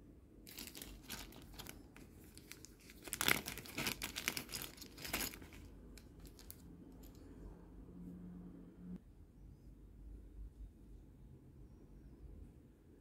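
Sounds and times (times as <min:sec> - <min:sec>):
plastic bag crinkling: 0:00.5 - 0:07.2.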